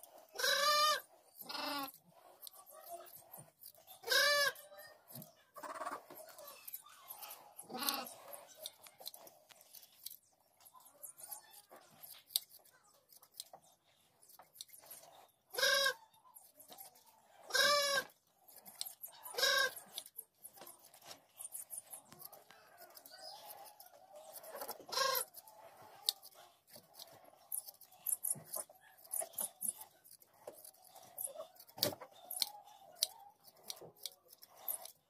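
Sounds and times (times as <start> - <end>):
hand shears snipping fleece: 0.0 - 10.2, 11.1 - 17.0, 17.6 - 35.0
farm animal calling: 0.1 - 3.0, 3.9 - 5.0, 5.6 - 8.8, 15.5 - 16.2, 17.4 - 18.2, 19.1 - 20.1, 22.4 - 26.2.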